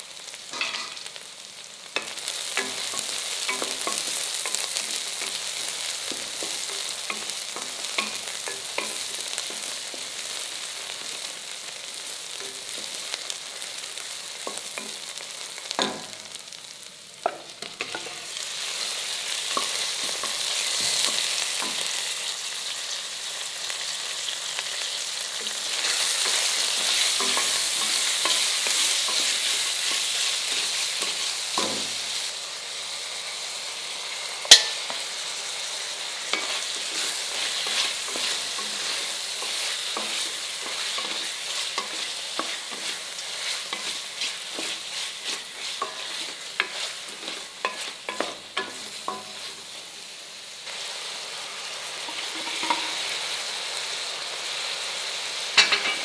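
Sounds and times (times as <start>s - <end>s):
meat sizzling in hot oil: 0.0s - 56.0s
spatula scraping a pot: 36.4s - 49.5s.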